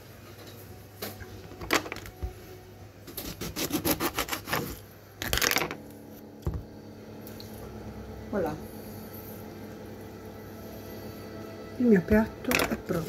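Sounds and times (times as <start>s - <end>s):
knife scrape: 3.1s - 4.8s
knife sawing through lemon: 3.2s - 4.8s.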